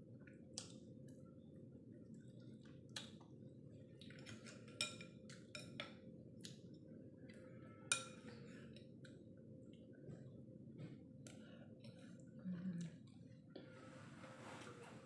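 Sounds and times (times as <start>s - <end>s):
cutlery clinking against a bowl: 4.1s - 6.0s, 7.9s - 8.4s.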